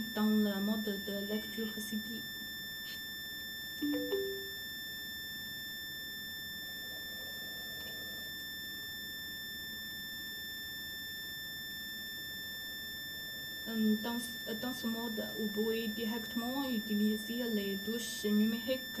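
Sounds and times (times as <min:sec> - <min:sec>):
three-note electronic chime: 0:03.8 - 0:04.7
high-pitched electronic whine: 0:03.8 - 0:05.4.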